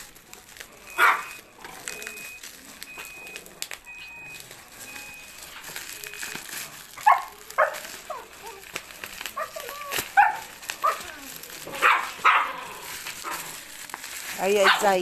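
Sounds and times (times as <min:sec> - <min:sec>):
bubble wrap crinkling: 0:00.0 - 0:15.0.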